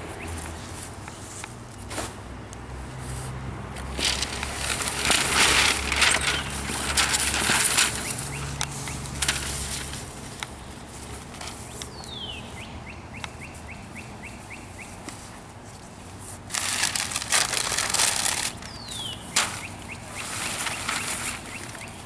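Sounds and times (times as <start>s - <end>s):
songbird singing: 0.0s - 1.3s, 7.8s - 9.3s, 10.4s - 15.4s, 18.3s - 22.0s
sheet material rustling and crinkling: 3.8s - 11.8s, 15.0s - 22.0s.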